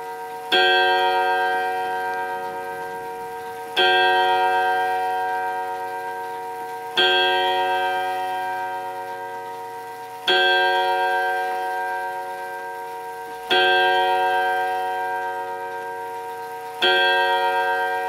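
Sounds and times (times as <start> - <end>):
clock gong striking: 0.0 - 18.0.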